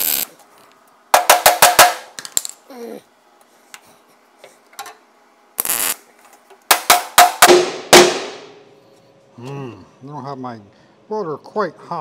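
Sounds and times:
welder tack weld burst: 0.0s - 0.4s, 5.6s - 6.0s.

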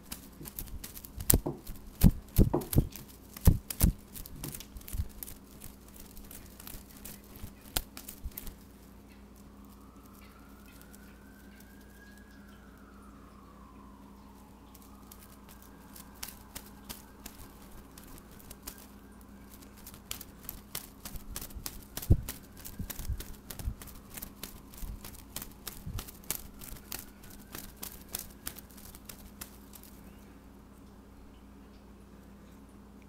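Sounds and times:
cat paws scuffing on wood: 0.2s - 5.4s.

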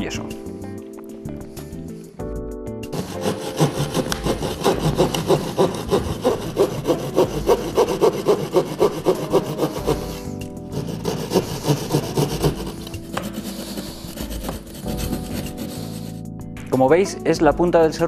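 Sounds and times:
handsaw cutting plasterboard: 2.9s - 16.2s.

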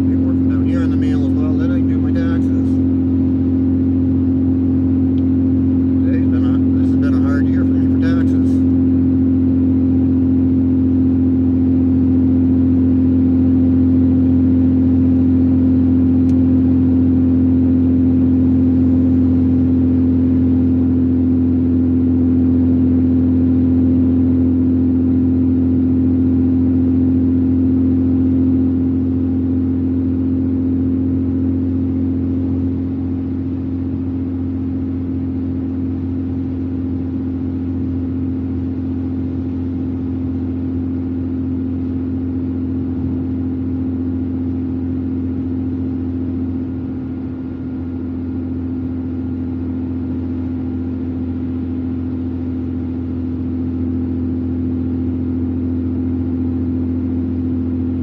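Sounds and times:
car cabin highway drone: 0.0s - 58.0s.

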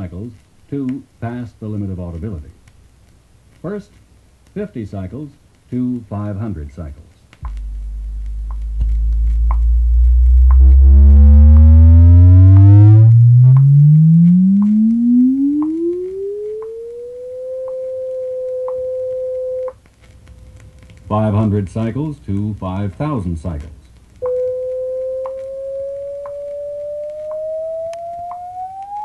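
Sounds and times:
record surface ticks: 0.0s - 29.0s
sine tone sweeping upward: 7.5s - 19.7s, 24.2s - 29.0s.

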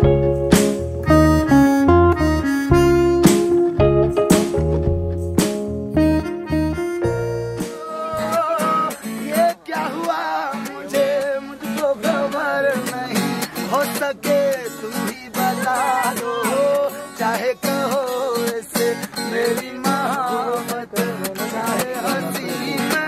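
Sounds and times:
acoustic guitar strumming: 0.0s - 23.0s
group singing: 8.0s - 13.1s, 15.4s - 17.4s.

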